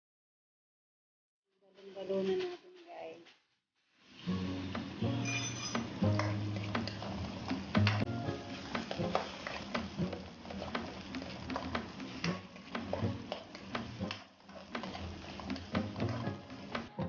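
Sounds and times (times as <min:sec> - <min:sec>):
food sauteing in oil: 0:04.0 - 0:17.0
spatula scraping a metal wok: 0:04.1 - 0:16.8.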